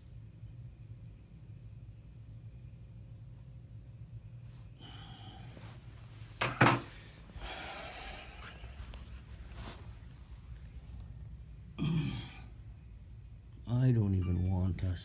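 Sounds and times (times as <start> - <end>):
low room hum: 0.0 - 15.0
person breathing close to microphone: 4.6 - 5.9, 6.9 - 10.0.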